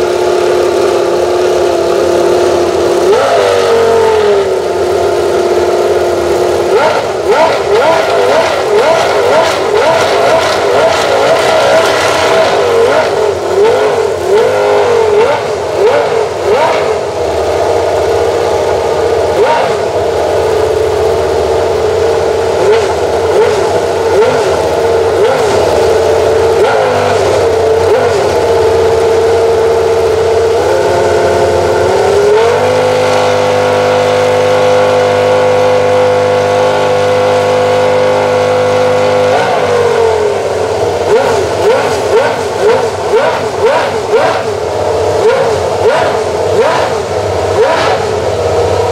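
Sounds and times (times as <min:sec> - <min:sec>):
racing car engine revving: 0:00.0 - 0:48.9.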